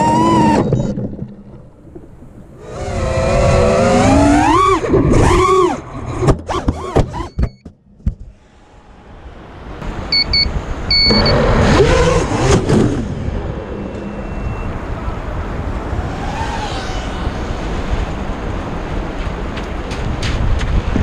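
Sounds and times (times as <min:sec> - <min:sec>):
short electronic beeps: 0:10.1 - 0:11.4, 0:13.8 - 0:14.8
wind buffeting microphone: 0:14.7 - 0:21.0.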